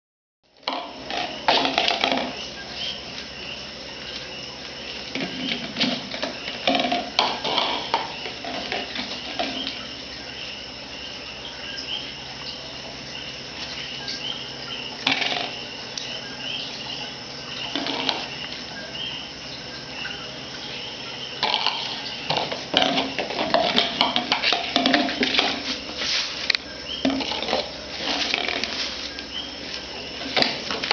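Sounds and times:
insects chirping: 0.5s - 30.9s
food bowl clattering on tiles: 0.7s - 2.4s, 21.4s - 25.8s.

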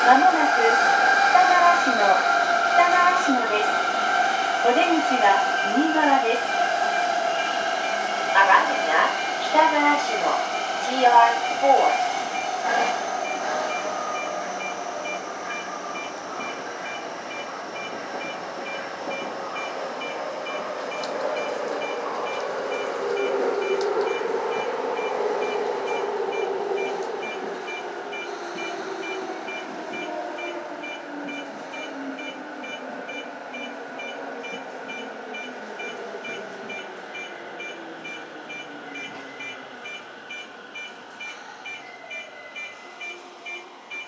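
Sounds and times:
wheel and rail rumble: 0.0s - 41.3s
short high beeps: 25.4s - 44.0s.

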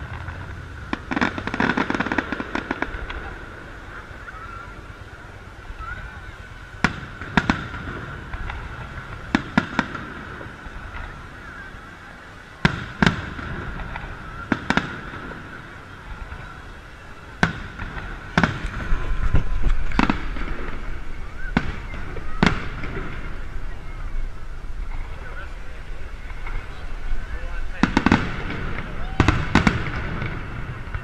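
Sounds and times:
fireworks shells bursting: 0.0s - 3.4s, 12.6s - 23.7s.

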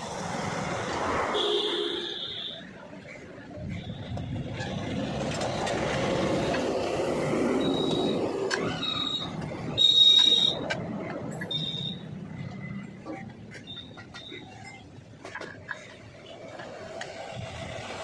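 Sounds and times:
passing vehicle rumble: 3.4s - 11.4s.

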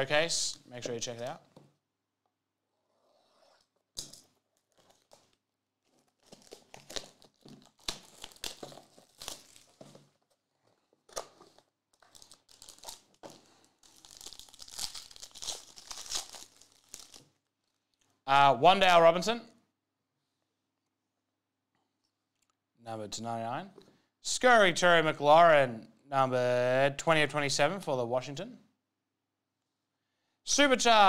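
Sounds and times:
packaging being torn: 4.0s - 10.4s, 11.0s - 17.4s
foil wrapper crinkling: 4.2s - 17.8s.

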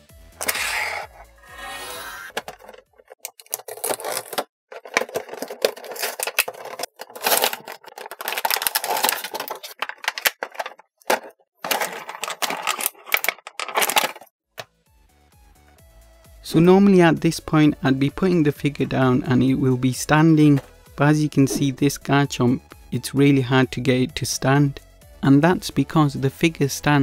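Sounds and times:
plastic packaging crinkling: 2.3s - 14.3s.

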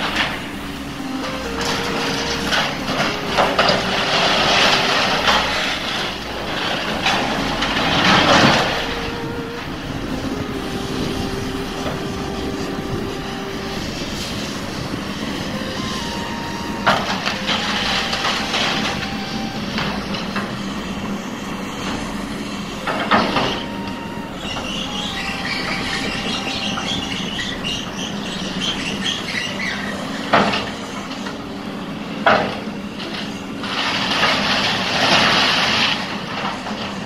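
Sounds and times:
excavator running: 0.0s - 37.0s
wood and metal debris crashing: 1.3s - 9.5s, 32.3s - 37.0s.

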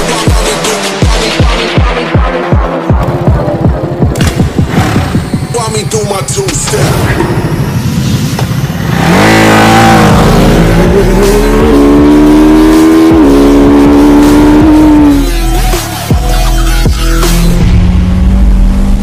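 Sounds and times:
motorcycle engine accelerating hard: 2.8s - 5.5s, 6.4s - 15.3s, 16.9s - 19.0s.

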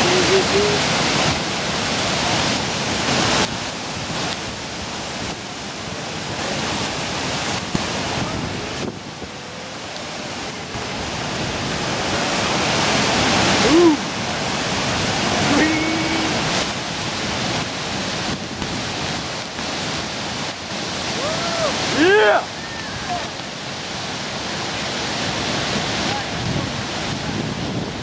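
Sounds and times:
whitewater rushing: 0.0s - 28.0s
brief voice-like cry: 13.6s - 14.0s, 21.2s - 23.2s.

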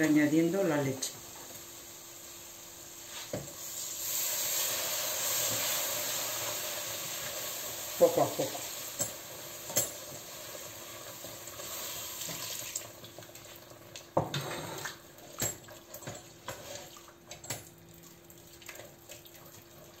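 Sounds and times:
wooden spoon stirring sloshing mixture: 14.8s - 20.0s.

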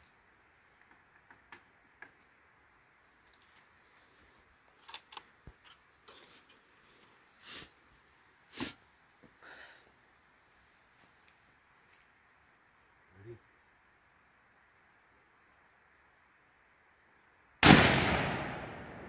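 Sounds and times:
rifle handling clicks and knocks: 4.8s - 6.6s.

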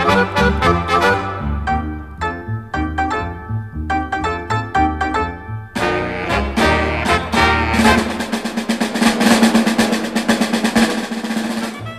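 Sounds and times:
loud music chords: 0.0s - 11.9s
rapid drum roll: 5.8s - 11.9s.

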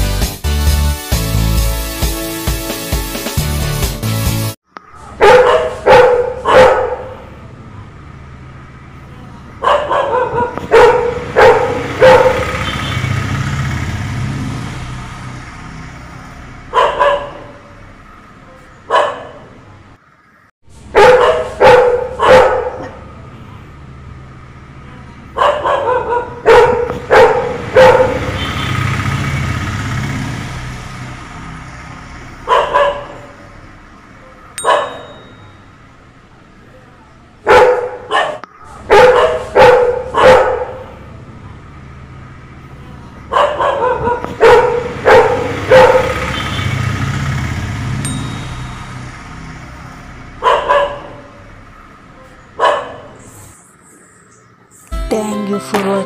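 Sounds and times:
dogs barking: 5.0s - 7.4s, 9.6s - 13.2s, 16.6s - 17.9s, 18.8s - 19.7s, 20.9s - 23.1s, 25.3s - 28.9s, 32.4s - 33.6s, 34.2s - 35.2s, 37.4s - 41.0s, 43.2s - 46.7s, 50.2s - 51.6s, 52.4s - 53.4s.

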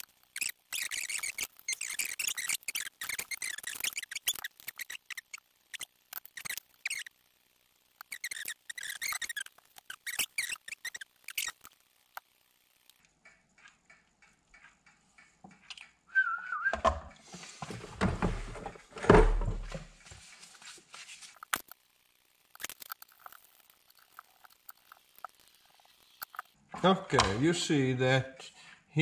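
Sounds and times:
small plastic parts clicking: 0.0s - 14.4s, 21.4s - 26.6s
wavering whistle-like note: 16.1s - 16.8s
rustling and rubbing handling noise: 17.2s - 21.5s.

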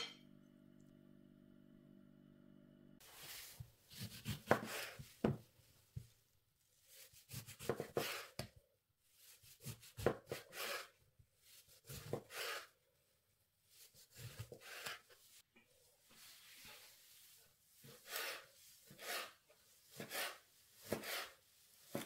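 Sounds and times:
food rubbing and scraping: 9.1s - 12.8s, 13.7s - 22.0s.

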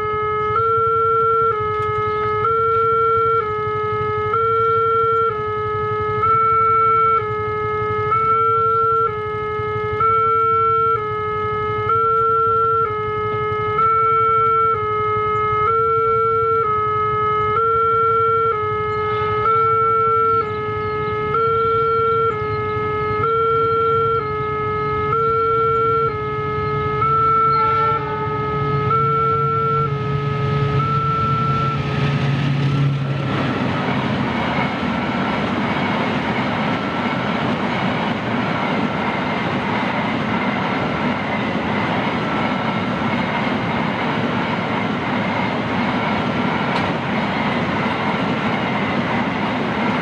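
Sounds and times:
level crossing alarm two tones: 0.0s - 9.2s, 9.9s - 20.5s, 21.2s - 32.0s.

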